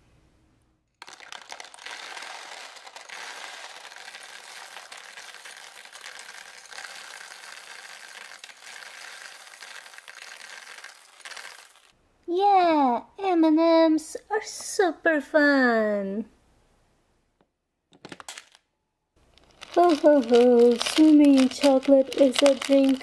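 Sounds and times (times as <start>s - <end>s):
candies rattling into plastic pool: 0.9s - 11.9s, 19.2s - 23.0s.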